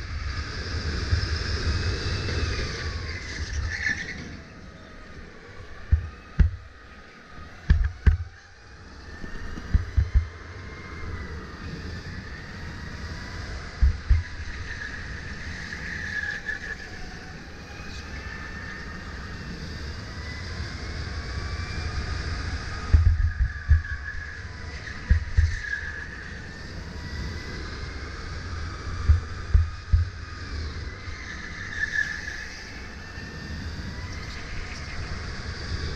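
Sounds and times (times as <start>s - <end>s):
electric kart motor whining: 0.0s - 35.9s
low thumps: 5.8s - 6.7s, 13.8s - 14.3s, 29.0s - 30.2s.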